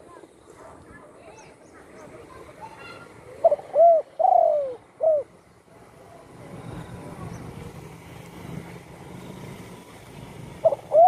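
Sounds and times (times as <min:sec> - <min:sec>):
dove cooing: 0:03.4 - 0:05.3, 0:10.5 - 0:11.0.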